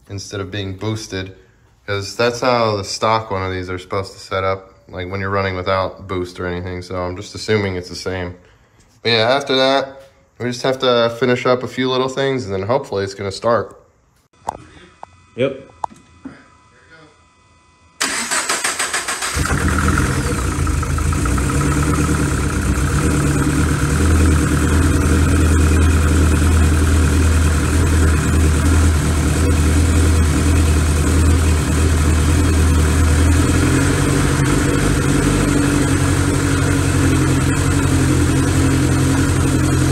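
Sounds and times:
car engine starting and idling: 0:18.0 - 0:39.9.

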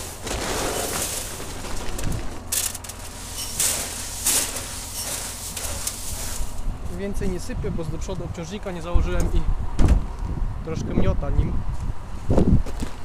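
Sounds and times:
tractor engine idling: 0:00.0 - 0:09.0.

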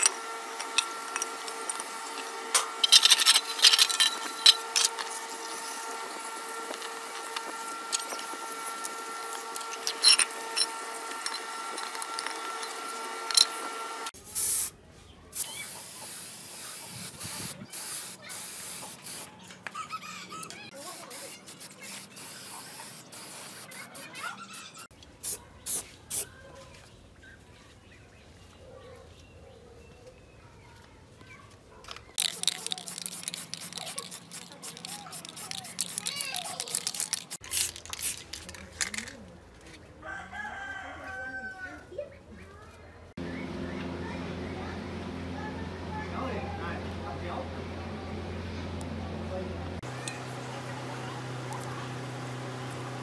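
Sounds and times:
aerosol spray can hissing: 0:14.3 - 0:14.7, 0:15.4 - 0:19.3, 0:20.8 - 0:24.0, 0:32.2 - 0:38.2
hose water spraying on metal: 0:15.4 - 0:19.3.

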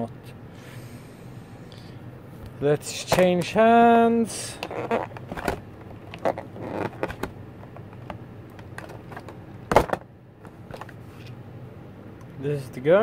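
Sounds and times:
plastic packaging clicks and crinkles: 0:04.6 - 0:10.0.

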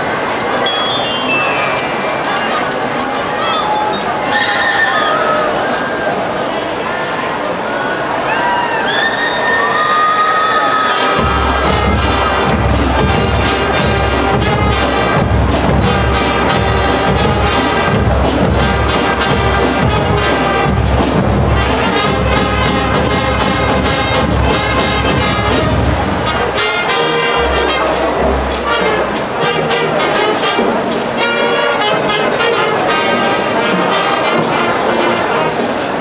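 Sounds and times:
marching band brass: 0:10.7 - 0:36.0
drums beating steady pulse: 0:11.0 - 0:36.0.

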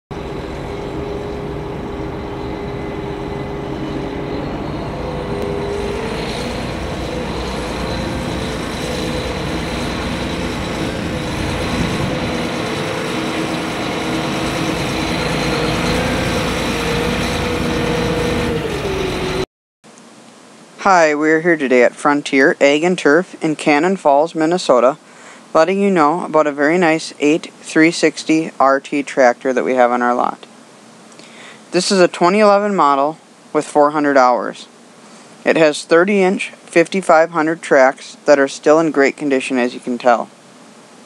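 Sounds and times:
tractor diesel engine running: 0:00.1 - 0:19.4.

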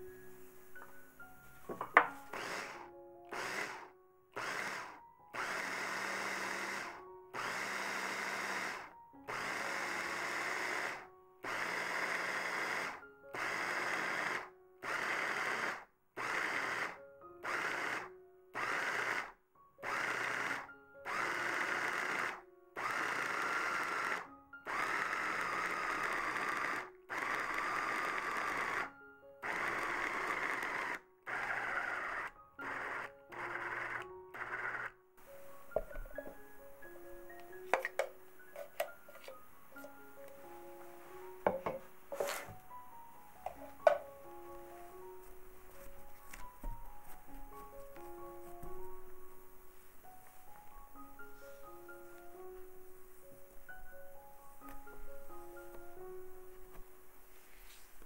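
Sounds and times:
small electric kitchen motor: 0:01.7 - 0:35.0.

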